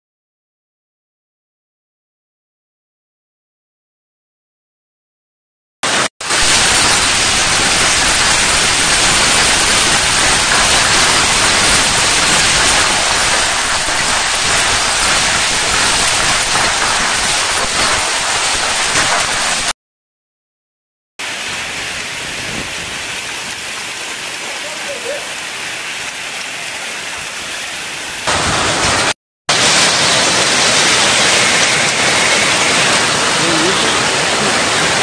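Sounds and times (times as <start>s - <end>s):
hail and heavy rain pelting: 5.9s - 19.7s, 21.2s - 35.0s
quieter rain: 5.9s - 19.8s, 21.2s - 35.0s.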